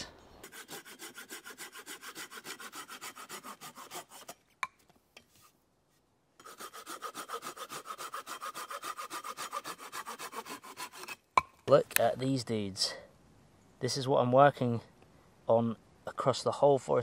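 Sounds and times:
saw cutting through wood: 0.4 - 4.4, 6.4 - 11.2.

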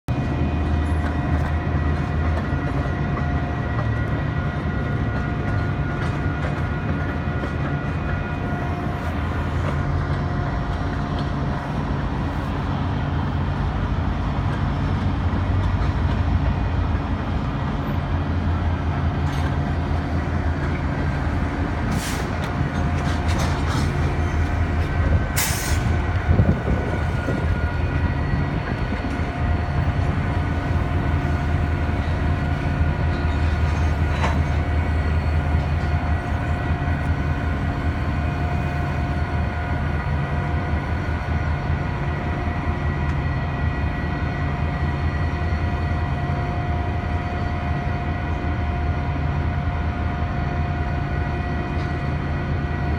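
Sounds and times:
train wheels rumbling on rail: 0.0 - 52.9.

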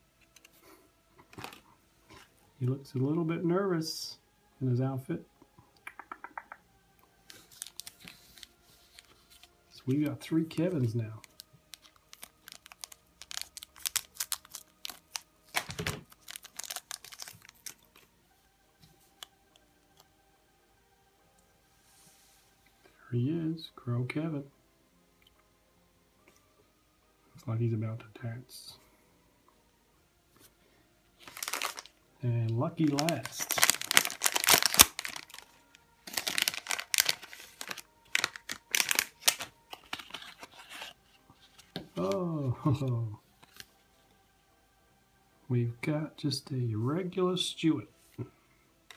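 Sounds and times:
plastic wrapping crinkling: 1.2 - 2.3, 7.3 - 18.0, 31.2 - 31.9, 32.8 - 42.8.

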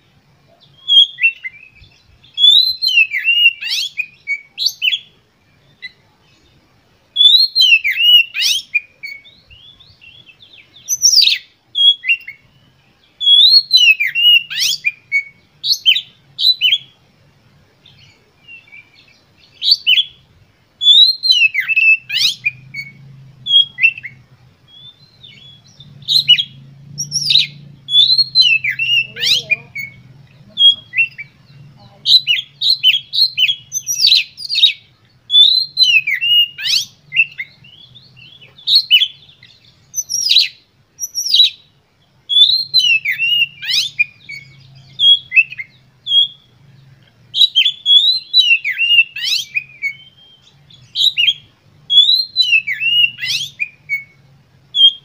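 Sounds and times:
bird singing whistles and chatter: 0.5 - 17.0, 17.8 - 41.7, 42.3 - 55.0.

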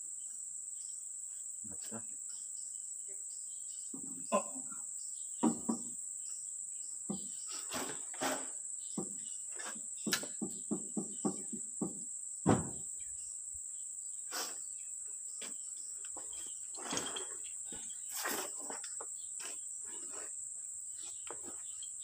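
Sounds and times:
high insect chorus: 0.0 - 22.0
metal tools clinking and knocking: 16.1 - 19.0.

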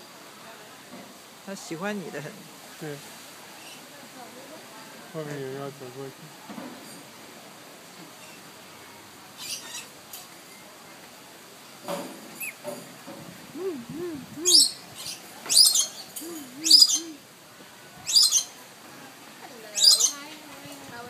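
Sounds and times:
soft low wavering bird notes: 13.6 - 14.8, 15.5 - 17.2.

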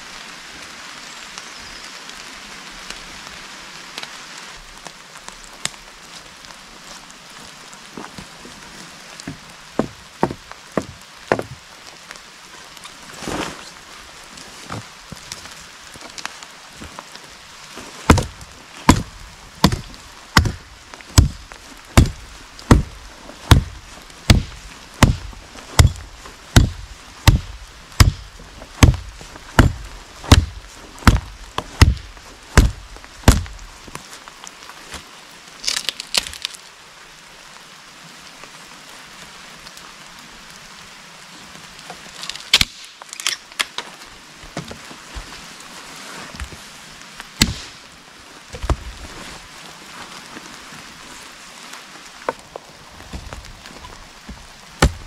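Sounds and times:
rain hissing: 0.0 - 55.0
wood crackling: 1.2 - 36.8, 41.4 - 55.0
sharp wood cracks: 9.2 - 11.7, 17.8 - 36.7, 41.9 - 44.8, 47.3 - 47.8, 52.2 - 55.0
hatchet chopping branch: 18.1 - 33.7, 42.5 - 42.9, 47.4 - 47.8, 54.8 - 55.0.

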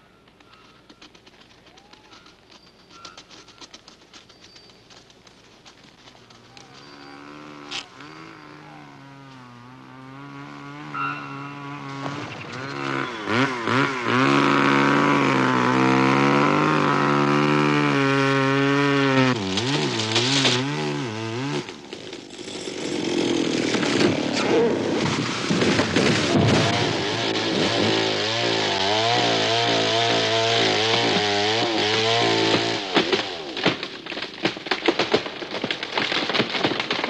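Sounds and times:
chainsaw cutting wood: 6.7 - 37.0
tree cracking and crashing down: 11.6 - 37.0.

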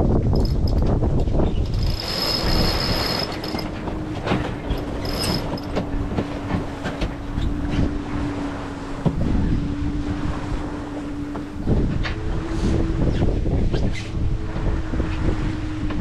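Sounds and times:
water rushing past hull: 0.0 - 16.0
wind buffeting microphone: 0.0 - 16.0.

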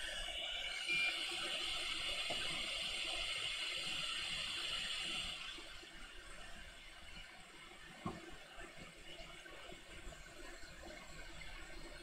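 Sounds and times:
hot air station hissing: 0.0 - 6.4.

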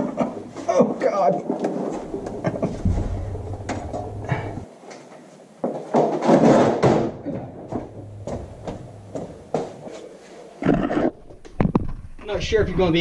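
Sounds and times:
creeper rolling over concrete: 1.4 - 4.6
knocks: 2.0 - 4.6, 6.8 - 9.8.

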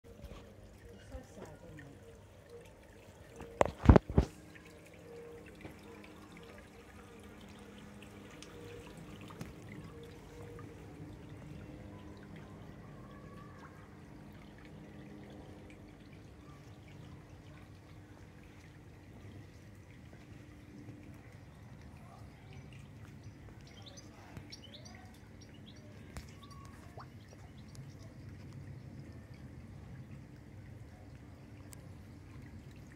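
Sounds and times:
water trickling in pond: 0.0 - 32.9
birds chirping: 21.2 - 29.0.

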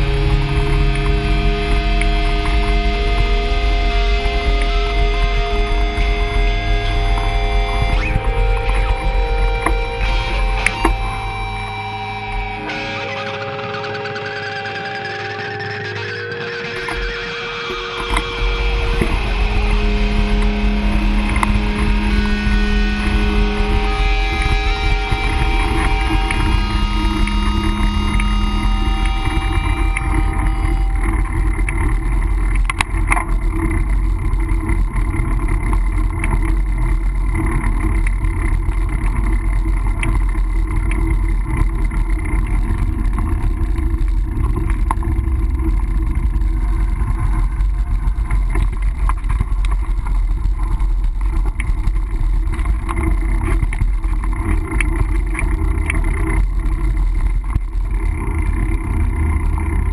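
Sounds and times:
bike rattles and clicks: 0.0 - 12.4, 16.5 - 59.9
bike tyre noise: 0.0 - 59.9
wind buffeting microphone: 17.6 - 59.9.

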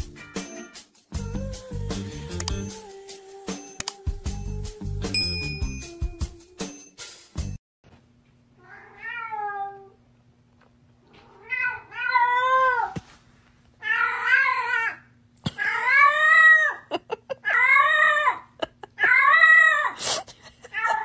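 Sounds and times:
cat meowing loudly: 8.6 - 9.9, 13.8 - 15.0.

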